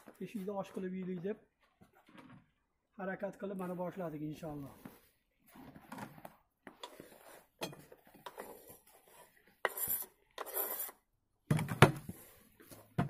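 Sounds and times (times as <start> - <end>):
knife scraping cutting board: 6.8 - 11.0.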